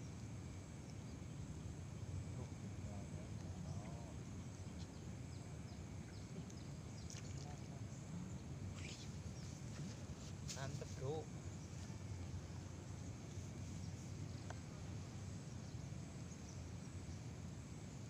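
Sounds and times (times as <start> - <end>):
distant voice: 2.4 - 4.3
small birds chirping: 2.4 - 17.4.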